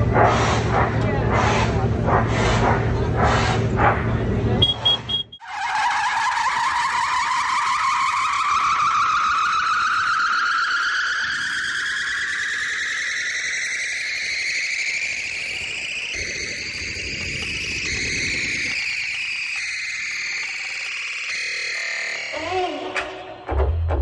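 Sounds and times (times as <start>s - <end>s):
electronic riser tone: 4.6s - 10.5s.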